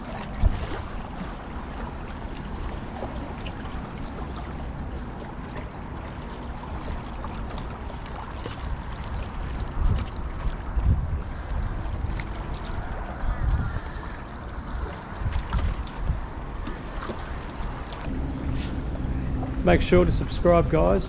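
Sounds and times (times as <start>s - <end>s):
small waves lapping: 0.0s - 21.0s
wind buffeting microphone: 8.8s - 21.0s.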